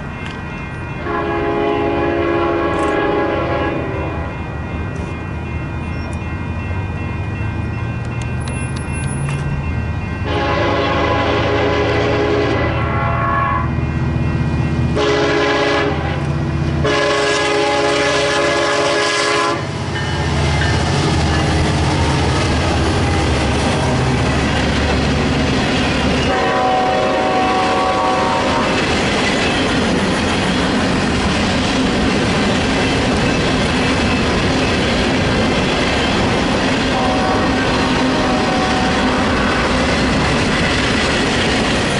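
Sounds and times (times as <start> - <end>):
locomotive rumble: 0.0 - 41.9
locomotive horn blasts: 1.0 - 4.3, 10.2 - 13.8, 15.0 - 19.8, 26.2 - 28.8, 36.9 - 39.6.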